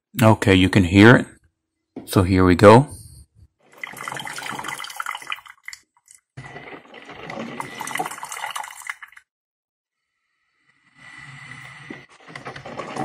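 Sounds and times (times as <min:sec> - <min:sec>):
coffee maker gurgling: 0:03.7 - 0:09.2.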